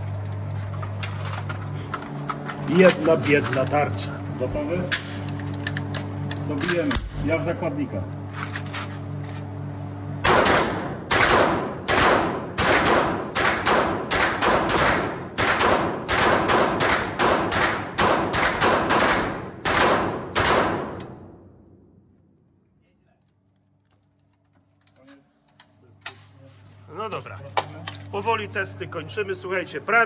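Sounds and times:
gunshots echoing indoors: 10.2s - 21.8s
low hum: 19.2s - 25.0s.

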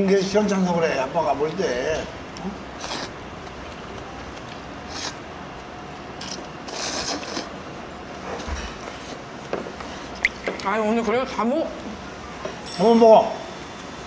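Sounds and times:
noodles being slurped: 2.8s - 3.2s, 4.8s - 5.2s, 6.2s - 7.6s.

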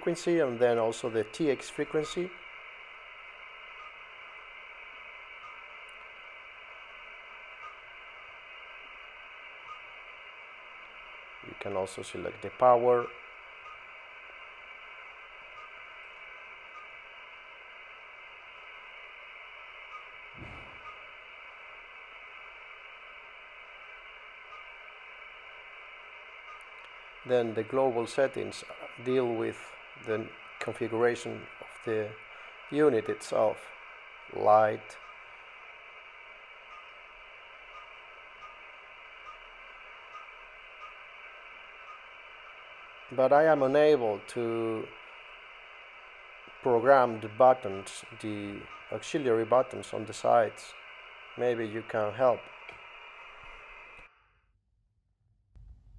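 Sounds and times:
radio static hiss: 0.0s - 54.2s
tiny electronic blips: 3.6s - 4.0s, 4.9s - 6.2s, 7.6s - 7.9s, 14.9s - 17.1s, 19.8s - 21.1s, 36.6s - 38.6s, 39.2s - 42.4s.

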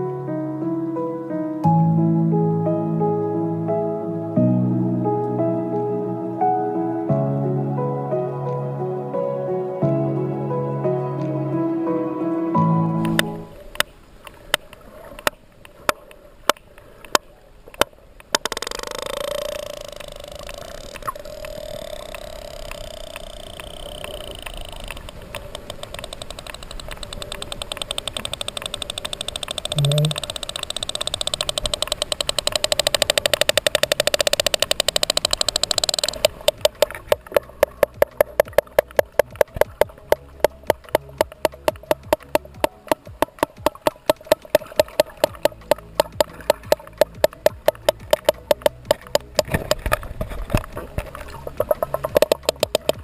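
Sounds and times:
faint steady hum: 12.9s - 53.0s
sperm whale clicks underwater: 13.0s - 53.0s.

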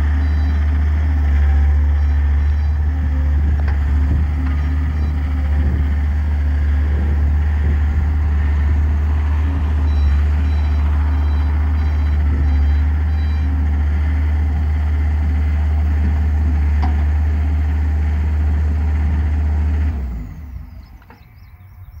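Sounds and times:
skid steer diesel engine running: 0.0s - 22.0s
faint repeated beeping: 7.8s - 13.6s.

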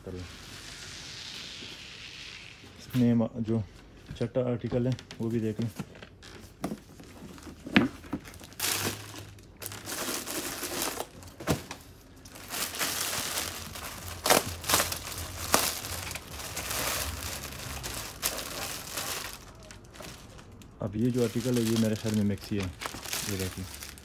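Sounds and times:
plastic packaging crinkling: 5.2s - 24.0s.

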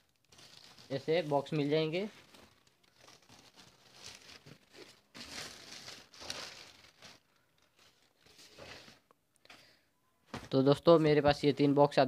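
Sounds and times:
plastic bag crinkling and rustling: 0.0s - 9.1s.

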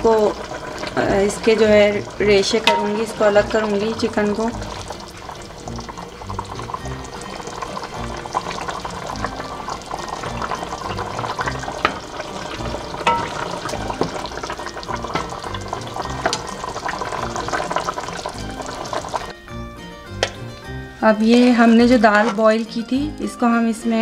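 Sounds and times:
soft background music: 0.0s - 24.0s
gravy bubbling and spattering: 4.3s - 19.3s
wooden spoon stirring: 21.0s - 22.9s.

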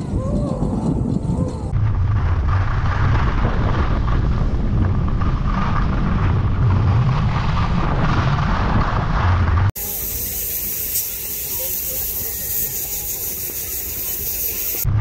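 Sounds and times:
wind buffeting microphone: 0.0s - 10.2s.

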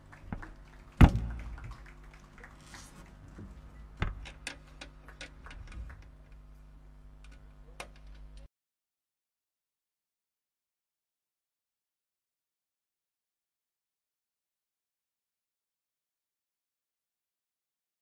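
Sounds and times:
loud thump: 1.0s - 1.7s.

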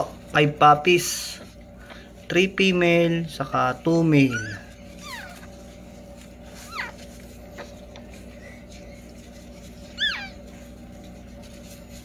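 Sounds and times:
faint steady hum: 0.0s - 12.0s
puppies squeaking: 4.2s - 5.7s, 6.5s - 7.5s, 9.7s - 10.7s.

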